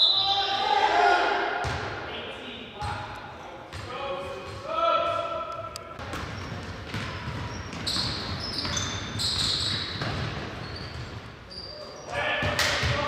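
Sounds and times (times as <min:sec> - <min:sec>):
basketball bouncing: 0:01.6 - 0:01.9, 0:05.9 - 0:11.3
sneakers squeaking: 0:03.7 - 0:04.6, 0:05.4 - 0:13.0.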